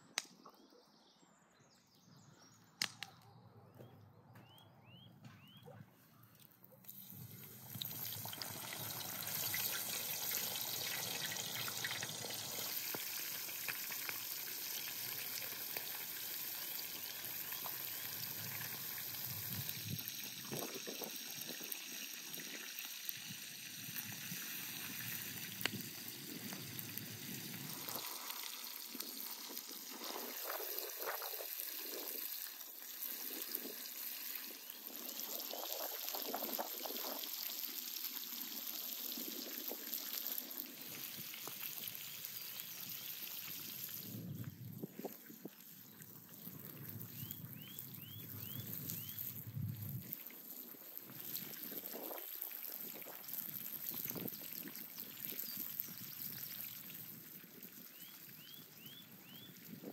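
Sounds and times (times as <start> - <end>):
fish sizzling in hot oil: 6.9 - 59.9.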